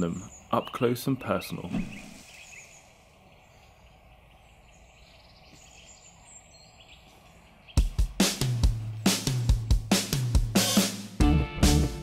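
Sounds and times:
faint woodland ambience: 0.0s - 10.1s
high thin bird calls: 1.7s - 8.0s
music with drums and guitar: 7.8s - 12.0s.

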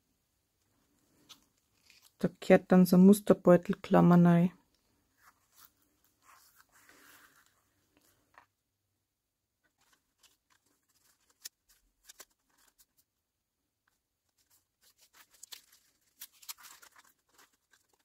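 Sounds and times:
cellophane bag crinkling: 14.4s - 18.0s.

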